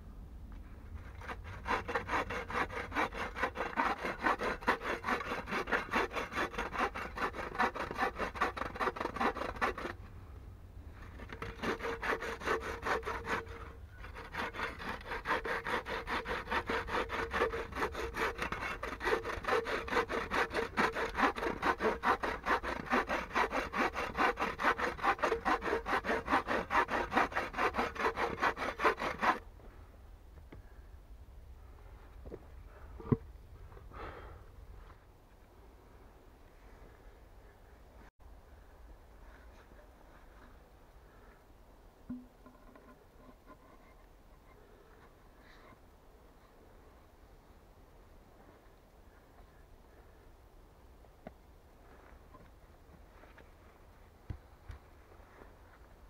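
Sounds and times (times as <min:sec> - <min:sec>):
hand saw cutting log: 0:01.0 - 0:10.0, 0:11.0 - 0:29.4.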